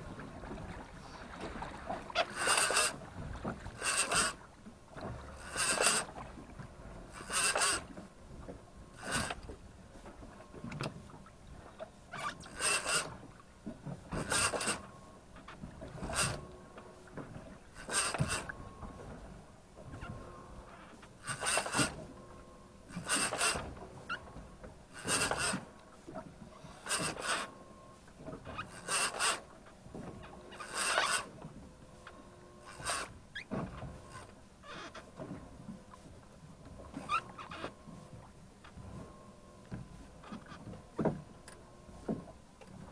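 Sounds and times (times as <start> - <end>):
fishing reel cranking: 2.3 - 3.0, 3.8 - 4.4, 5.4 - 6.1, 7.2 - 7.8, 12.2 - 13.1, 17.8 - 18.5, 21.2 - 21.9, 23.0 - 23.6, 25.0 - 25.6, 27.0 - 27.5, 28.8 - 29.4, 30.6 - 31.3.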